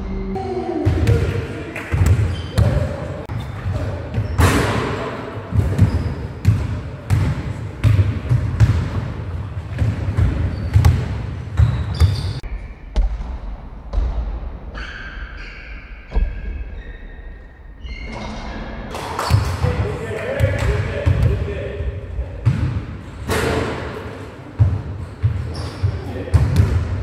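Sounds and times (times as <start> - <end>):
basketballs bouncing on hard floor: 0.8 - 4.8, 5.5 - 12.4, 24.6 - 27.0.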